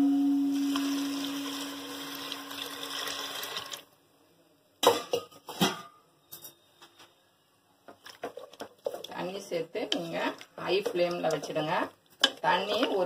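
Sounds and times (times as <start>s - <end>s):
water pouring into a pot: 0.5s - 3.9s
kitchenware clinking against pot: 4.8s - 6.7s.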